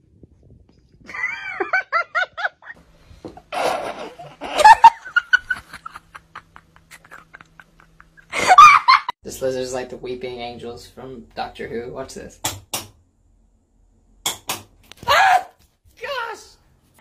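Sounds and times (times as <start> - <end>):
person laughing: 1.1 - 2.8, 3.5 - 9.2.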